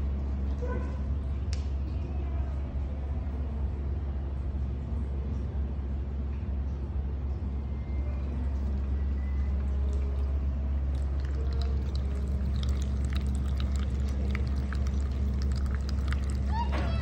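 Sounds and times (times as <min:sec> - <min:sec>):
steady low hum: 0:00.0 - 0:17.0
water trickling and splashing: 0:08.6 - 0:17.0.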